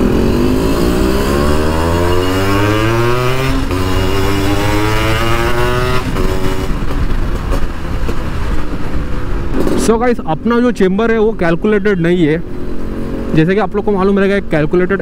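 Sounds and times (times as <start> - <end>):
motorcycle engine accelerating: 0.0 - 10.2.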